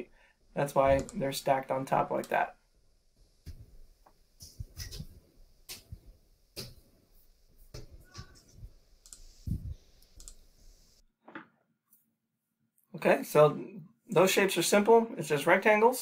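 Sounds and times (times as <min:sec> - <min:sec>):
keyboard and mouse clicking: 0:09.0 - 0:09.3, 0:10.0 - 0:10.4.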